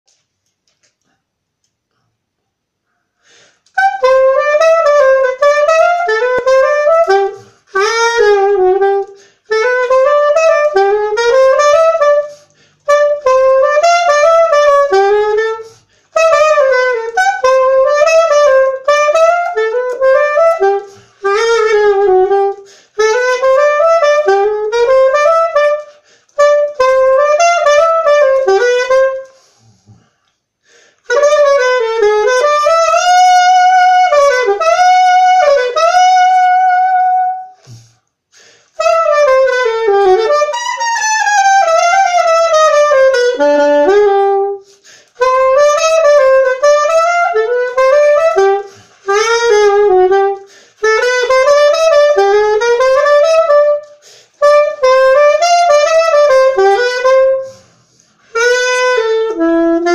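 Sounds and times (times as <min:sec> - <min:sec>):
soprano saxophone jazz melody: 0:03.2 - 0:59.9.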